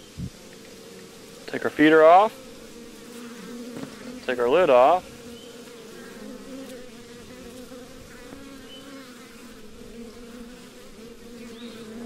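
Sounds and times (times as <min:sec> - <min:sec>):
honey bees buzzing: 0:00.0 - 0:12.0.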